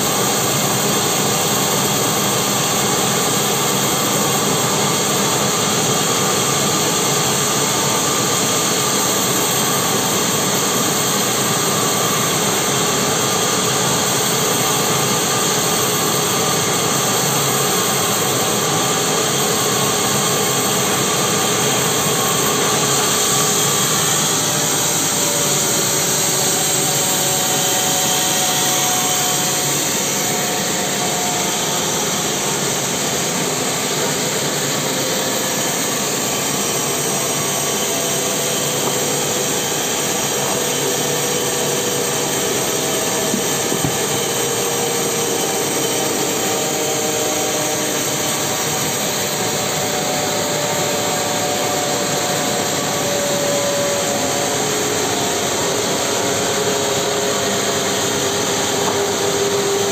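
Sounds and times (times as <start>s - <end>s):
sawmill saw cutting log: 0.0s - 59.9s.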